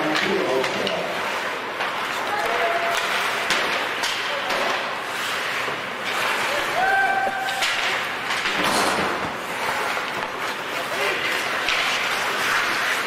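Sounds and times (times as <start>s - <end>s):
hockey sticks and puck clacking: 0.0s - 13.0s
rink background noise: 0.0s - 13.0s
person shouting: 6.7s - 7.6s.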